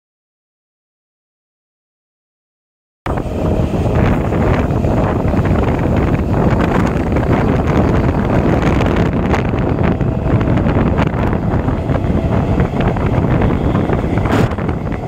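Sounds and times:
electric train rumble: 0:03.1 - 0:15.0
wind buffeting microphone: 0:03.1 - 0:15.0.

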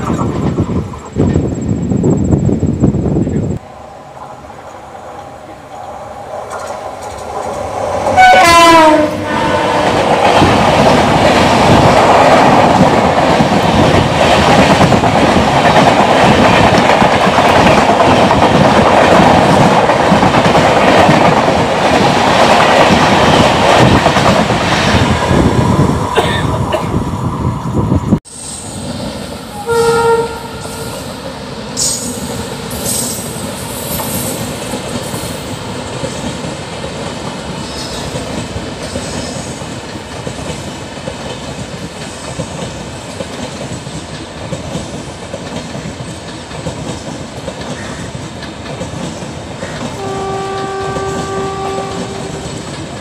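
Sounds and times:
train passing with rail clatter: 0:00.0 - 0:53.0
train horn: 0:08.1 - 0:10.1, 0:29.5 - 0:31.0, 0:49.9 - 0:52.7
short train horn blast: 0:08.2 - 0:10.0, 0:29.5 - 0:31.0, 0:50.0 - 0:52.6.

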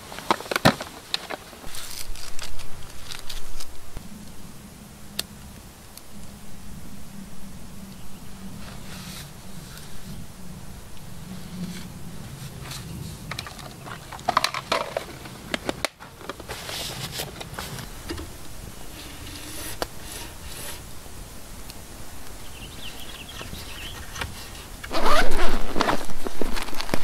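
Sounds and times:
padded bag rustling open: 0:00.0 - 0:03.8, 0:24.8 - 0:27.0
campfire crackling and popping: 0:00.0 - 0:06.4, 0:10.8 - 0:27.0.

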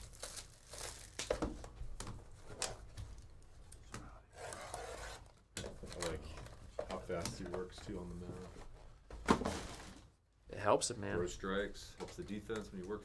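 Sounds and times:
plastic wrap crinkling: 0:00.0 - 0:01.7.

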